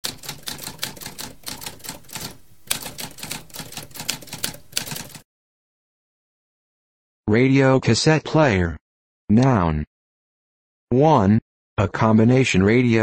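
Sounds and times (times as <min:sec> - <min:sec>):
typewriter keys clacking: 0:00.0 - 0:05.2.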